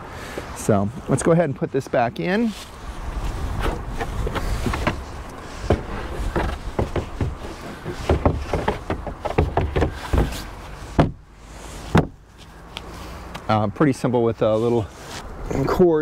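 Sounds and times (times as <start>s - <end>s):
cargo cover knocking and clunking: 3.6s - 11.2s, 11.9s - 12.2s.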